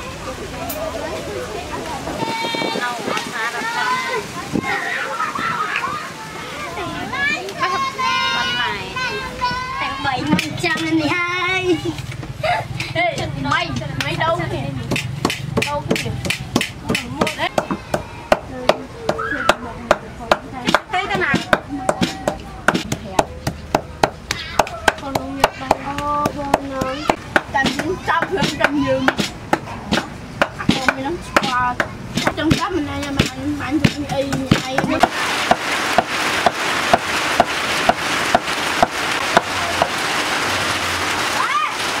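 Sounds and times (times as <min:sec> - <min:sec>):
cleaver chopping meat on wood board: 0:14.9 - 0:39.5.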